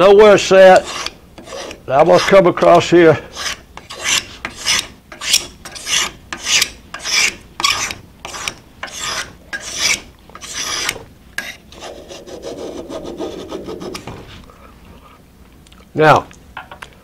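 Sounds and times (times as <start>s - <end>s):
scraper shaving wood: 0.7s - 2.4s, 3.3s - 14.4s
low rubbing: 10.4s - 15.2s.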